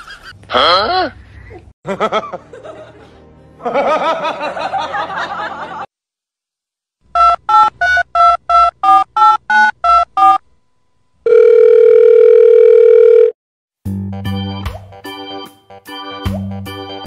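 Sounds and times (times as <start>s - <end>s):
steady telephone tone: 11.2s - 13.4s.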